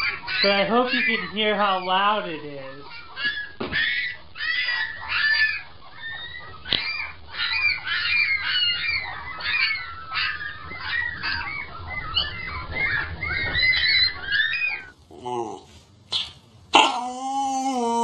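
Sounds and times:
puppies squeaking: 0:00.0 - 0:15.0.

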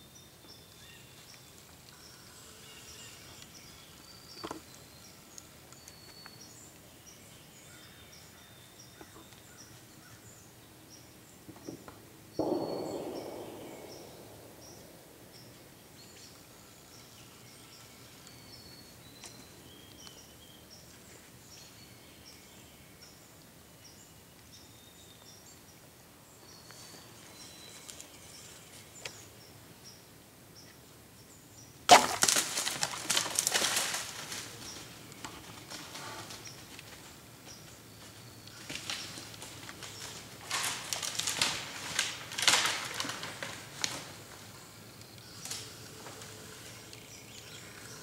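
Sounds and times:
bow shot crack: 0:12.3 - 0:16.3, 0:31.9 - 0:33.6
deer crashing through dry leaves: 0:31.9 - 0:37.1, 0:38.6 - 0:44.5.

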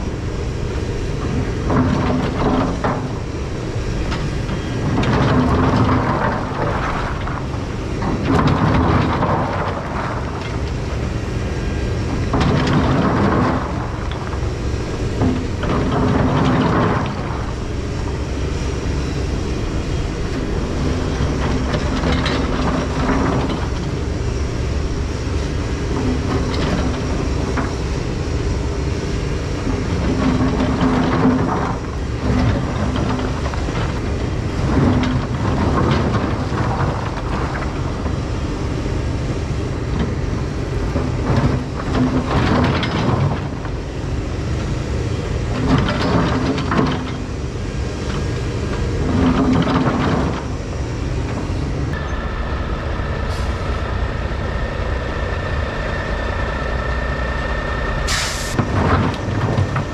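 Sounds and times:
excavator engine under load: 0:00.0 - 0:59.9
high whine: 0:51.5 - 0:59.9
air brakes hiss: 0:53.2 - 0:53.9, 0:58.0 - 0:58.6.

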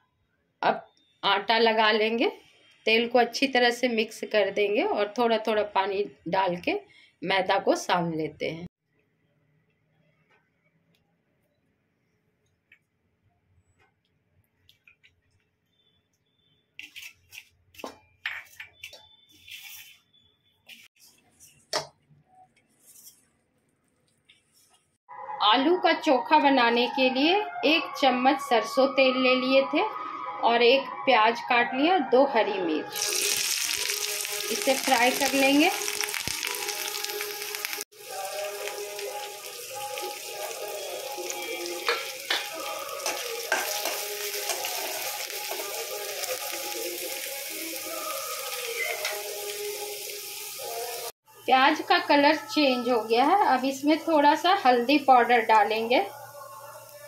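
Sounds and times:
hands scraping dough in steel bowl: 0:16.8 - 0:21.7, 0:22.6 - 0:23.3
onions sizzling in oil: 0:33.0 - 0:51.1
metal spatula scraping pan: 0:41.9 - 0:44.8.

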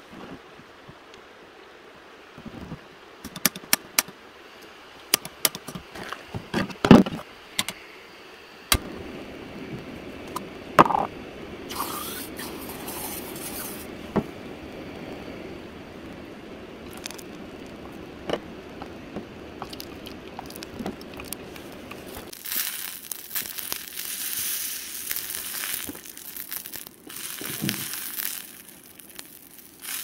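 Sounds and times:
gas burner rushing: 0:08.6 - 0:22.4.

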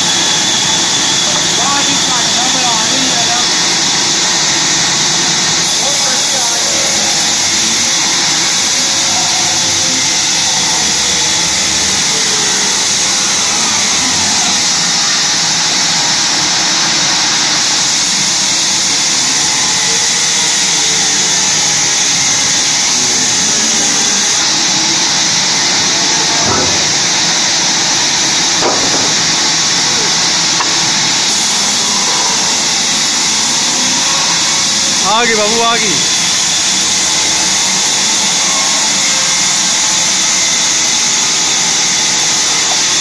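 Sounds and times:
band saw hissing: 0:00.0 - 0:43.0.

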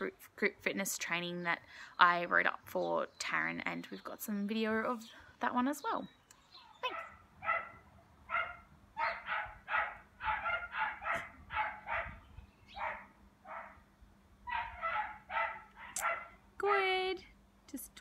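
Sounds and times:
dog barking: 0:06.9 - 0:13.8, 0:14.5 - 0:16.4.

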